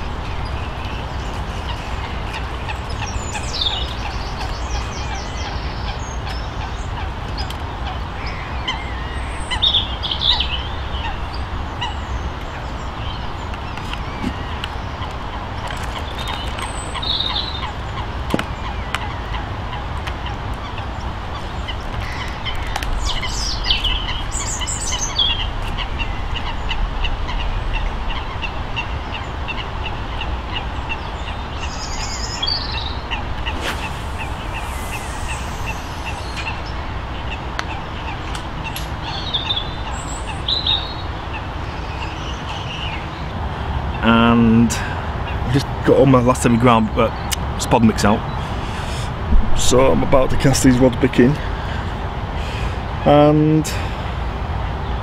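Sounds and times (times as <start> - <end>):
waterfowl calling: 0.0 - 12.6, 16.6 - 42.1
low background rumble: 0.0 - 44.0.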